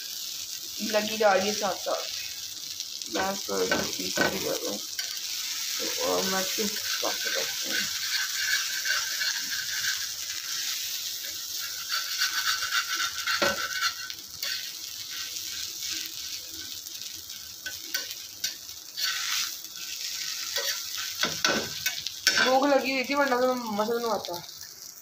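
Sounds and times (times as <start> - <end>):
oil sizzling in a pan: 0.0 - 25.0
metal fork scraping a pan: 3.2 - 22.7.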